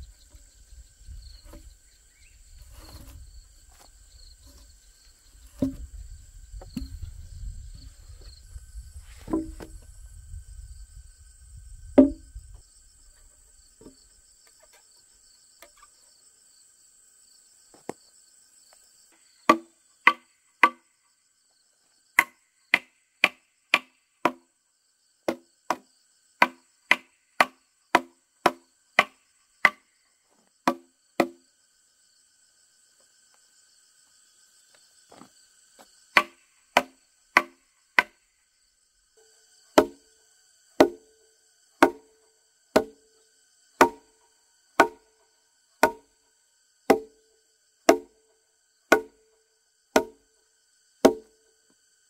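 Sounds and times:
insect trill: 0:00.0 - 0:52.0
tool knocking on wooden post: 0:01.4 - 0:01.7, 0:02.6 - 0:03.8, 0:05.4 - 0:06.0, 0:06.6 - 0:07.1, 0:09.2 - 0:09.8, 0:12.0 - 0:12.3, 0:19.5 - 0:20.8, 0:25.3 - 0:25.8, 0:26.4 - 0:29.8, 0:30.7 - 0:31.4, 0:36.2 - 0:38.2, 0:39.8 - 0:40.0, 0:40.8 - 0:41.0, 0:41.8 - 0:42.1, 0:42.8 - 0:43.0, 0:43.8 - 0:44.1, 0:44.8 - 0:45.1, 0:45.8 - 0:46.1, 0:46.9 - 0:47.2, 0:47.9 - 0:48.1, 0:48.9 - 0:49.2, 0:50.0 - 0:50.2, 0:51.1 - 0:51.3.

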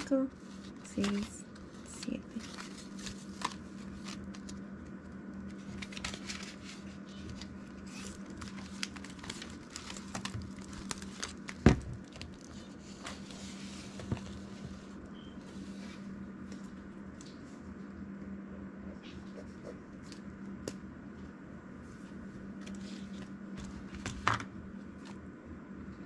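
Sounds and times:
banknotes and plastic rustling: 0:00.0 - 0:16.1
faint hum: 0:00.0 - 0:26.0.

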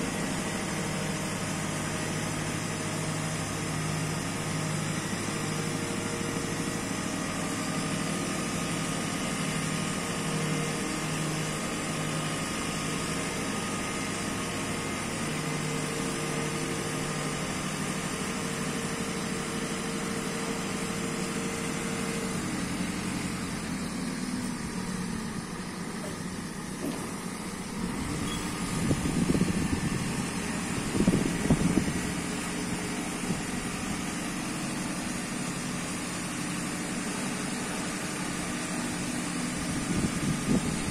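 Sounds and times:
diesel engine running: 0:00.0 - 0:40.9
hydraulic boom telescoping: 0:26.0 - 0:29.9.

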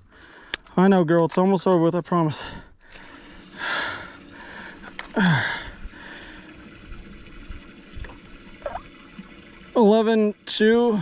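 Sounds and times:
water dripping and trickling: 0:03.0 - 0:11.0
water splashing in a tank: 0:03.2 - 0:11.0.

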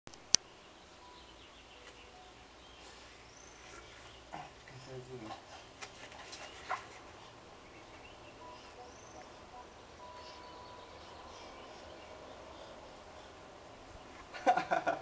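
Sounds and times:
faint high chirps: 0:00.2 - 0:04.3, 0:07.7 - 0:13.3
thin whistle-like tone: 0:08.4 - 0:11.1.

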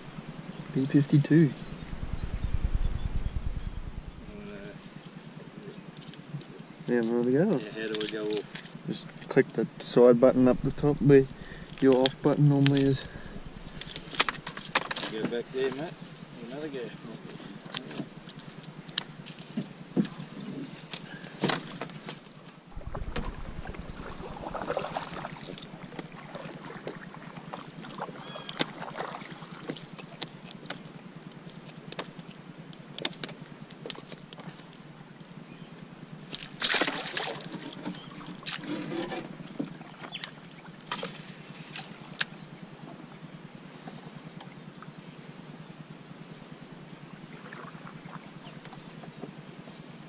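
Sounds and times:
water splashing: 0:22.7 - 0:30.1, 0:36.5 - 0:38.7
water sloshing against hull: 0:22.7 - 0:30.9, 0:36.5 - 0:42.2.

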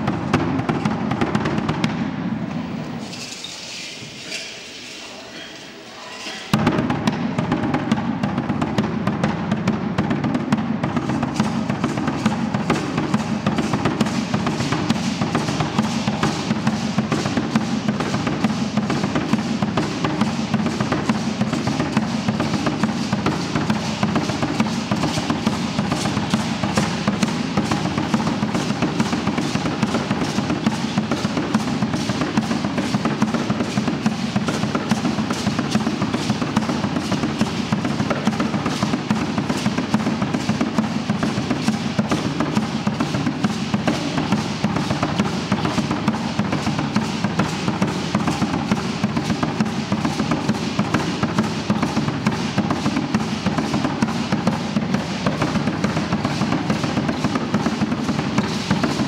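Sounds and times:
fast drumming: 0:00.0 - 0:02.2, 0:06.5 - 0:59.0.

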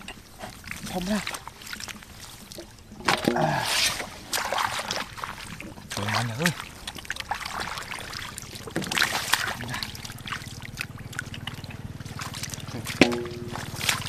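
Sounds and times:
low steady hum: 0:00.0 - 0:14.0
hands splashing in shallow water: 0:07.0 - 0:14.0.

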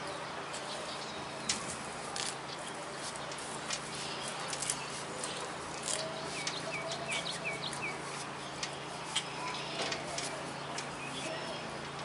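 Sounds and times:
bird chirping: 0:00.0 - 0:11.7
steady low hum: 0:00.0 - 0:12.0.

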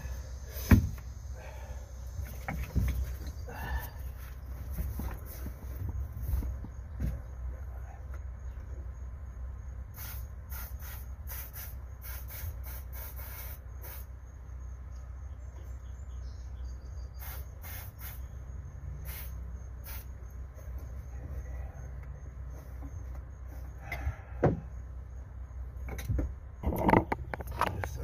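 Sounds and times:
aerosol spray can hissing: 0:10.0 - 0:14.1, 0:17.2 - 0:18.2, 0:19.1 - 0:20.1.

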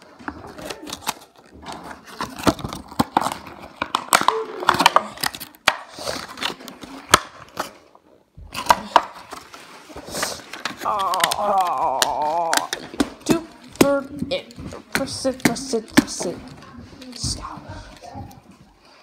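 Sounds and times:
plastic packaging crinkling: 0:00.0 - 0:07.9, 0:08.6 - 0:13.8.

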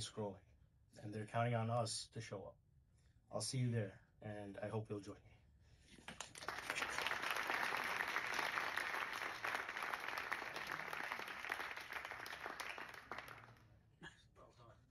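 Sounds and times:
audience applause: 0:06.1 - 0:13.6.

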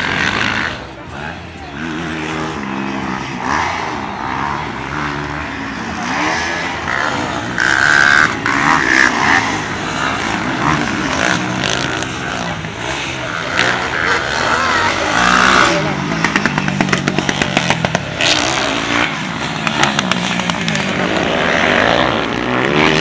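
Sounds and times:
dirt bike engines revving: 0:00.0 - 0:23.0.

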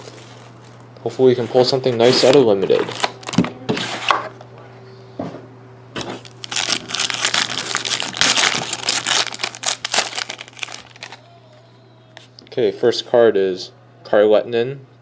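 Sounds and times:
foil wrapper crinkling and tearing: 0:06.2 - 0:11.2.

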